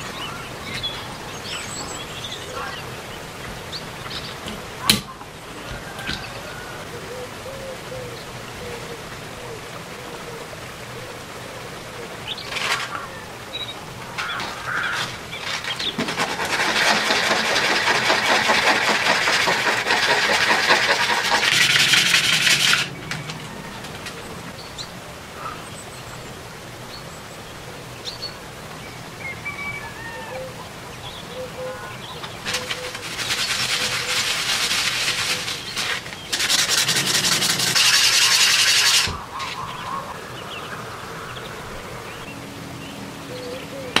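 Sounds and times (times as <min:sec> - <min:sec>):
lens scraping on sandpaper: 0:32.4 - 0:39.2.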